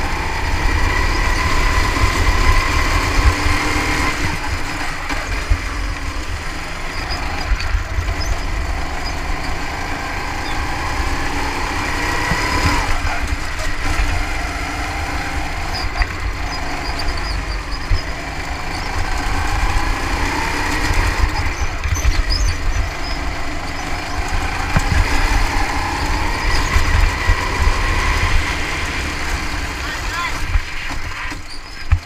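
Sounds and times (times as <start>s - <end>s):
go-kart engine running: 0.0s - 32.0s.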